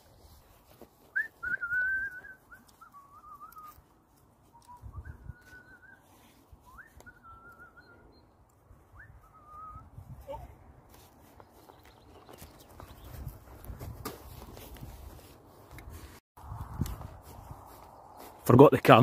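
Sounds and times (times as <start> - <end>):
person whistling: 1.1 - 3.8, 4.5 - 8.3, 8.9 - 9.9.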